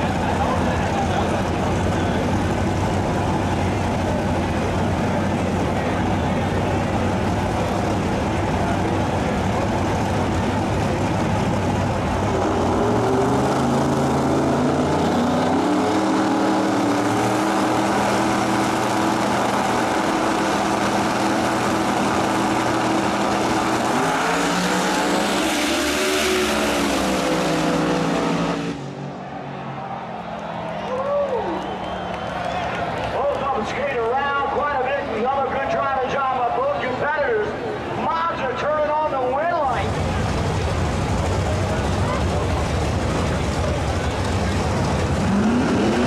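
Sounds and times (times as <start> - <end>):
drag racing engines revving: 0.0 - 46.0
race cars launching at full throttle: 0.0 - 46.0.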